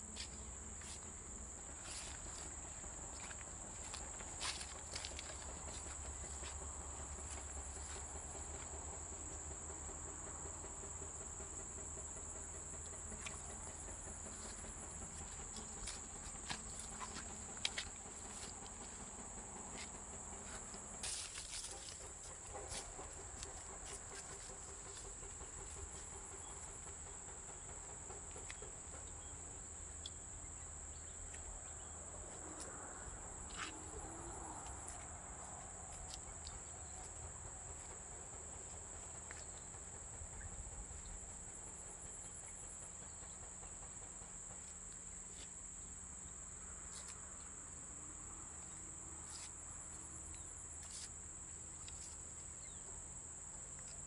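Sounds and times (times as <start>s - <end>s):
fast pulsing insect trill: 0.0s - 31.2s
insects droning: 0.0s - 54.0s.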